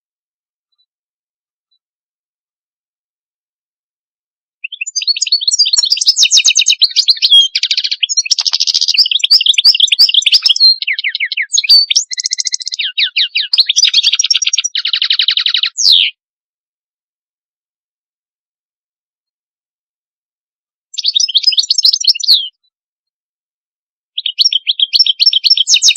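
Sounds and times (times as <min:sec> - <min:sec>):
songbird twittering and trilling: 0:04.6 - 0:16.2, 0:20.9 - 0:22.6, 0:24.2 - 0:25.9.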